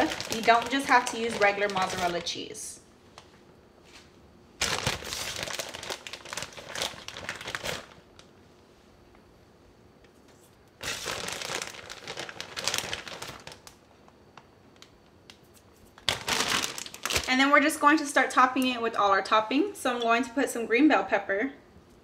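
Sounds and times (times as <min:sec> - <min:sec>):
plastic bag crinkling: 0:00.0 - 0:02.6, 0:04.6 - 0:08.3, 0:10.8 - 0:13.9, 0:16.0 - 0:17.8.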